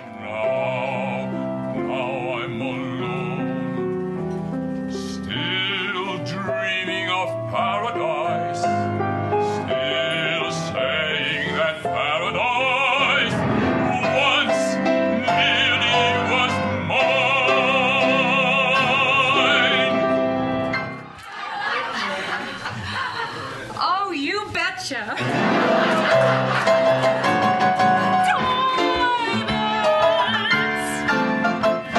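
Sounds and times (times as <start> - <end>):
operatic baritone singing: 0.0 - 3.9, 5.0 - 20.7
piano accompaniment: 0.0 - 21.2, 25.2 - 31.9.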